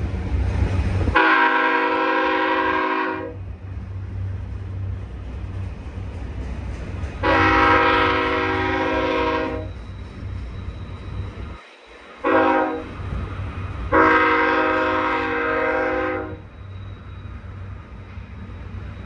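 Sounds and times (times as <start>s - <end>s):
locomotive air horn blasts: 1.1s - 3.4s, 7.2s - 9.7s, 12.2s - 12.9s, 13.9s - 16.4s.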